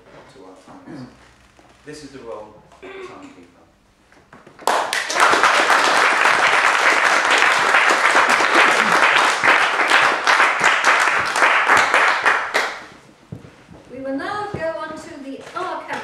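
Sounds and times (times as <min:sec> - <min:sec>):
audience applauding: 0:04.6 - 0:13.0.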